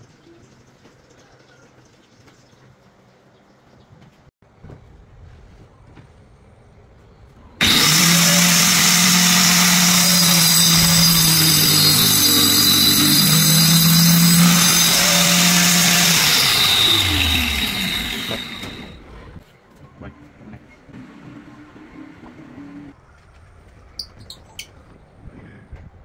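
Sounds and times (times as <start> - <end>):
disc cutting into wood: 7.6 - 19.0
angle grinder whining: 7.6 - 19.1.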